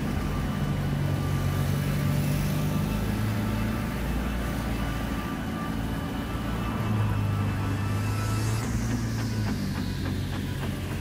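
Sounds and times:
engine running: 0:00.0 - 0:11.0.

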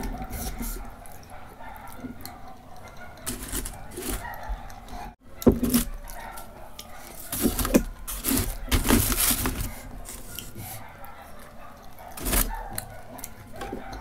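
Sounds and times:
chewing and wet mouth sounds: 0:00.0 - 0:05.2.

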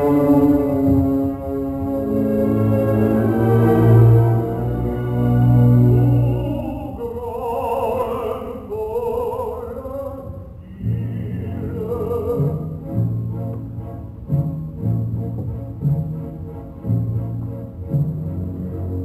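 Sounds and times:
low strings repeated strokes: 0:00.0 - 0:06.6
orchestra playing: 0:00.0 - 0:07.1
tenor singing with vibrato: 0:00.0 - 0:13.2.

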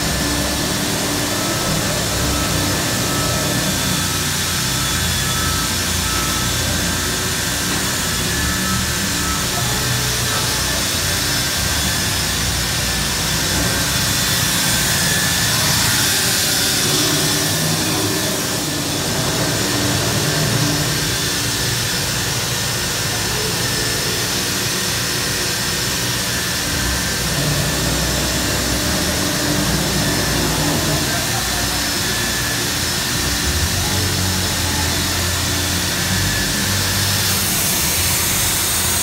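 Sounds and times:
router machine hum and whine: 0:00.0 - 0:39.0.

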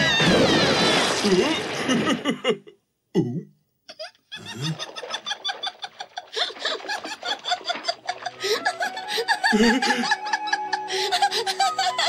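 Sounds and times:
cartoon voices laughing: 0:03.9 - 0:12.0.

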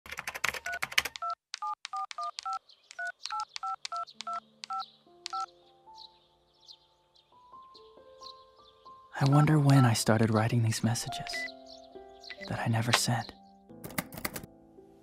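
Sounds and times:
phone keypad beeps: 0:00.6 - 0:05.5, 0:09.7 - 0:10.0.

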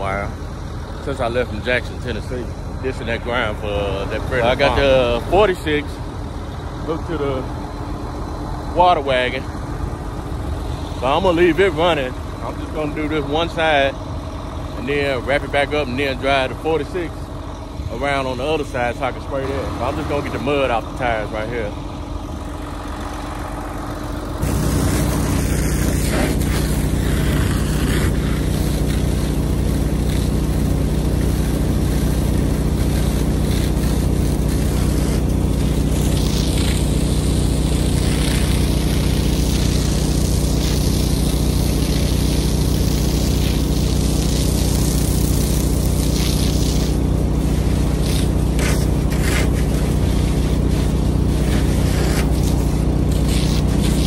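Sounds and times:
tractor engine idling: 0:00.0 - 0:54.0
hose spraying water: 0:22.6 - 0:54.0.

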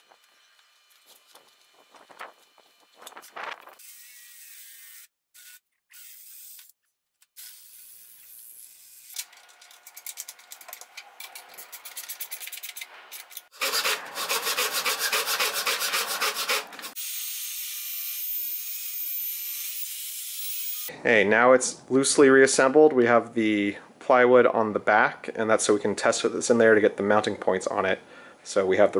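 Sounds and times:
loud fast rasping: 0:13.5 - 0:17.0
hand tool rubbing on plywood: 0:13.6 - 0:17.0.

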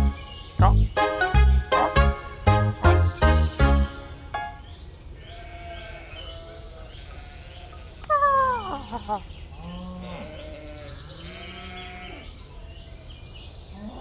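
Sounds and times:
animal bleating: 0:05.2 - 0:07.6, 0:09.6 - 0:12.4.

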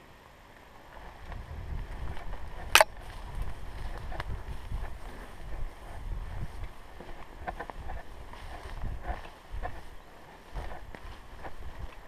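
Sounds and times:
camera handling rustle: 0:02.1 - 0:05.0
sharp crack: 0:02.6 - 0:03.0.

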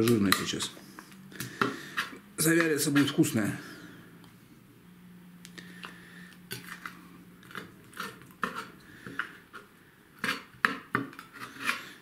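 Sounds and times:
knife scraping cutting board: 0:01.4 - 0:03.2, 0:06.5 - 0:12.0.

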